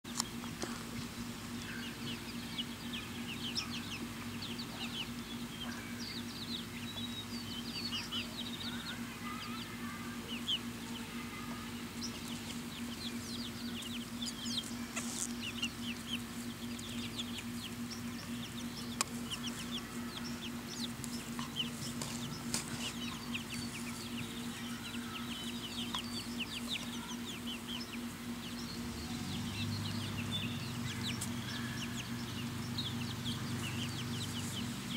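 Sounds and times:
chicks peeping and chirping: 0.0 - 34.9
steady low hum: 0.0 - 34.9.

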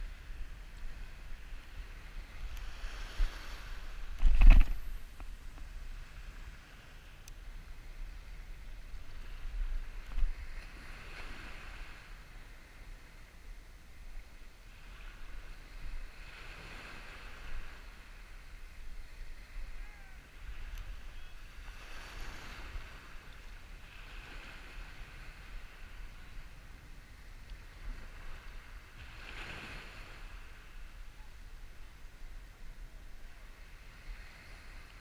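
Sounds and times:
small surf waves washing: 0.0 - 35.0
wind rumble on microphone: 0.0 - 35.0.

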